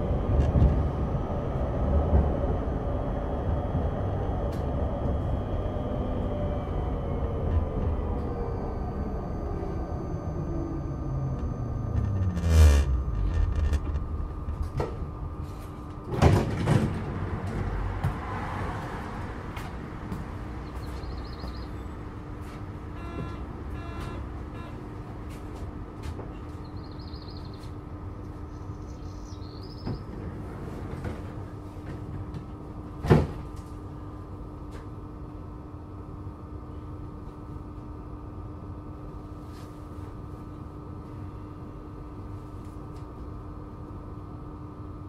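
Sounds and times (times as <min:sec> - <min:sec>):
steady low hum: 0:00.0 - 0:18.2, 0:19.4 - 0:45.0
tram electric drive whine: 0:00.0 - 0:45.0
sliding doors clunking: 0:16.1 - 0:18.2
short high beeps: 0:23.0 - 0:24.8.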